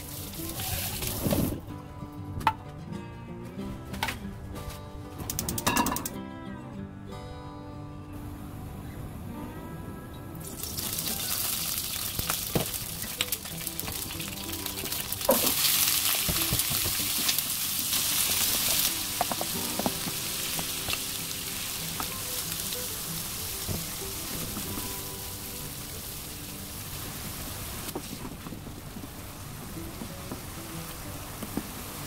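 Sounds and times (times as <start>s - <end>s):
potatoes sizzling in hot oil: 0.0s - 1.6s, 10.4s - 32.0s
soft background music: 0.0s - 32.0s
potatoes knocking in wok: 12.0s - 22.4s.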